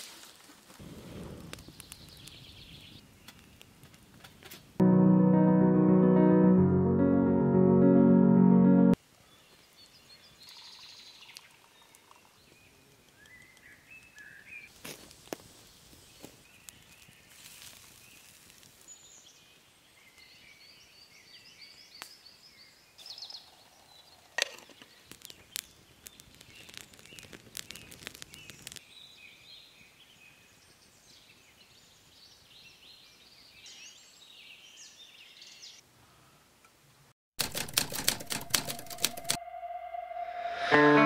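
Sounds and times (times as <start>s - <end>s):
music: 4.8s - 9.0s, 38.1s - 41.0s
sharp snaps and clicks: 24.4s - 28.8s
loud rapid crackling: 37.4s - 39.4s.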